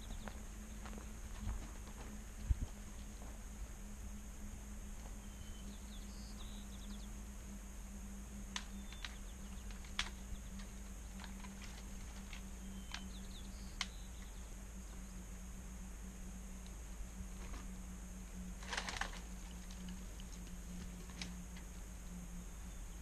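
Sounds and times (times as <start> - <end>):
small bird chirping: 0.0 - 0.4, 12.3 - 15.0
faint hum: 0.0 - 23.0
wood and twigs snapping: 8.4 - 14.4, 18.6 - 22.2.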